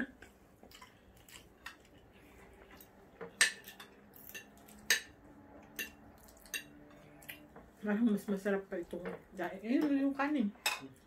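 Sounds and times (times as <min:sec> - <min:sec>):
cutlery clinking on plates: 0:02.8 - 0:07.1, 0:10.6 - 0:11.0.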